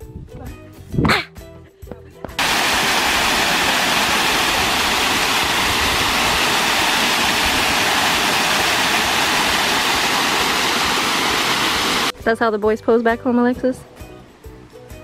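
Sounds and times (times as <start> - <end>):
small waterfall rushing: 2.4 - 12.1.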